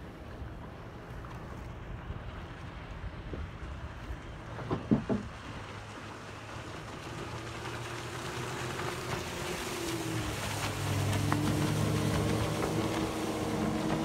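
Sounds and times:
motorboat engine drone: 0.0 - 14.0
water noise: 0.0 - 14.0
wind: 0.0 - 14.0.

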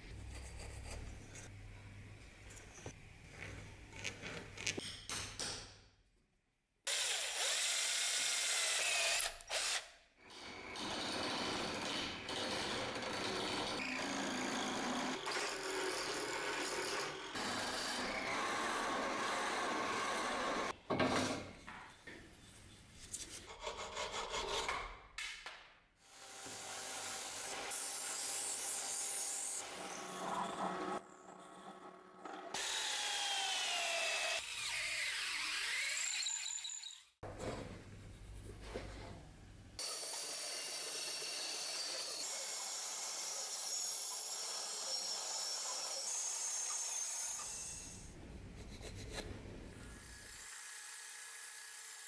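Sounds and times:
band saw cutting wood: 10.8 - 20.7, 26.2 - 37.2, 39.8 - 48.1, 49.7 - 52.0.

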